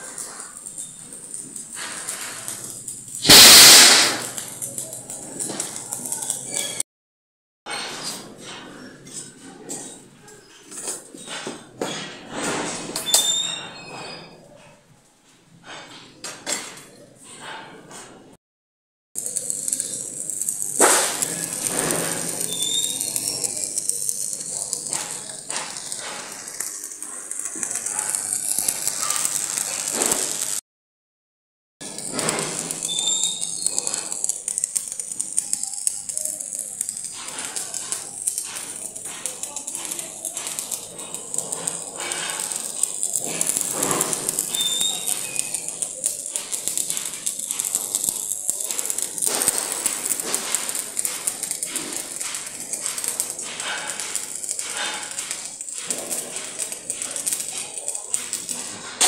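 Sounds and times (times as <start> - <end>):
welding arc crackling: 0.0 - 6.8, 19.2 - 30.6, 31.8 - 59.0.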